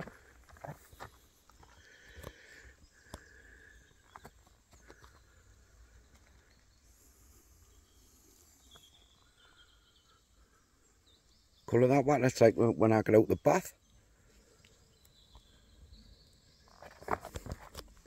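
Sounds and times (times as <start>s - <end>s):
faint high chirps: 5.0s - 11.8s.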